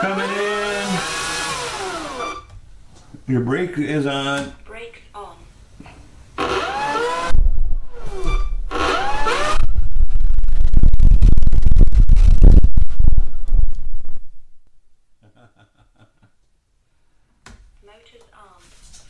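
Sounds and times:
electric motor whine: 0:00.0 - 0:02.5, 0:06.4 - 0:09.8.

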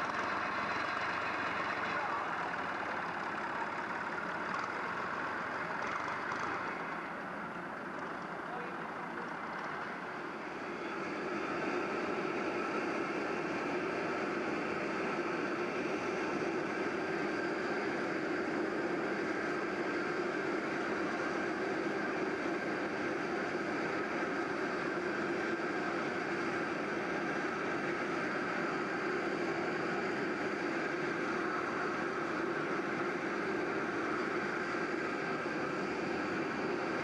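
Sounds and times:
gas turbine engines whining: 0:00.0 - 0:37.0.

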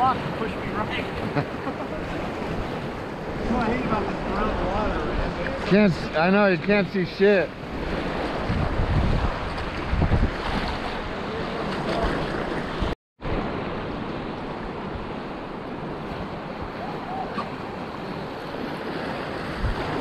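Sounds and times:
whitewater rushing and splashing: 0:00.0 - 0:20.0
wind thumping on microphone: 0:07.6 - 0:17.8, 0:19.2 - 0:20.0.

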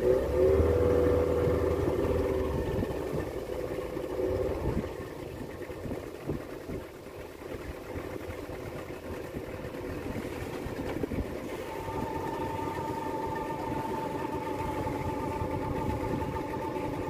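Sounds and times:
boat motor running: 0:00.0 - 0:17.0
steady whine: 0:09.0 - 0:17.0.

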